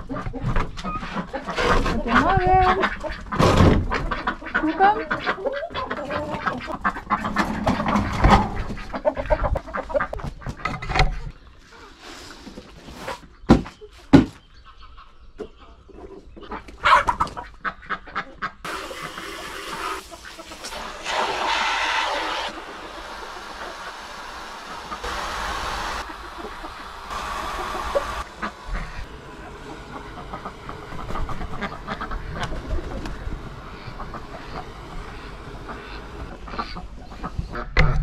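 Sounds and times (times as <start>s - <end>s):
chickens clucking: 0.0s - 38.0s
water pouring into drinker: 18.7s - 26.0s.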